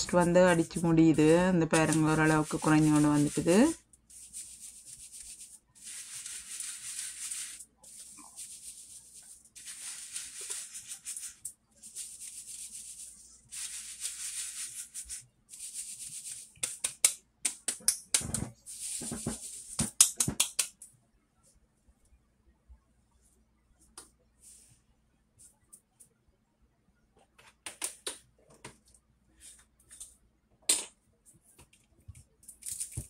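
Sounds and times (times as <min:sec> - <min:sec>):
sieve being rapped: 0:00.0 - 0:03.8
flour rasping through sieve mesh: 0:00.0 - 0:16.9.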